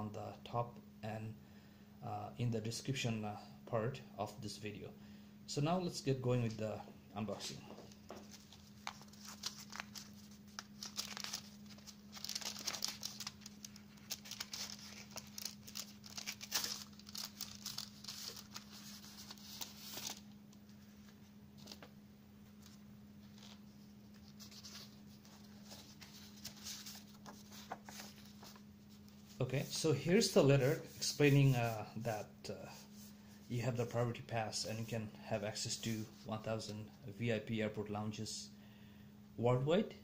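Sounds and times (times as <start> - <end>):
paper crinkling and rustling: 7.8 - 21.9, 22.5 - 31.5
envelope tearing: 8.3 - 20.3.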